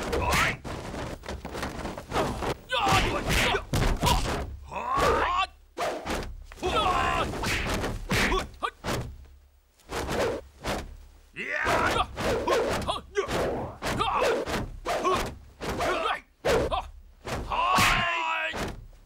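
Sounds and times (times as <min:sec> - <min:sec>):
fighters grunting and shouting: 0:00.0 - 0:00.6, 0:02.1 - 0:05.6, 0:06.6 - 0:08.8, 0:11.4 - 0:18.7
punch and kick impacts: 0:02.4 - 0:04.6.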